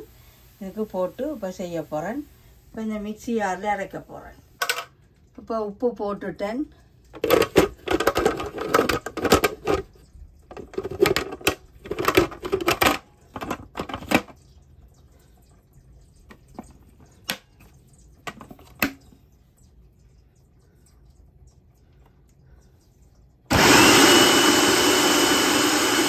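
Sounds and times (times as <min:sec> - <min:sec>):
plastic lid clattering and scraping: 0:07.2 - 0:09.9, 0:10.5 - 0:14.3.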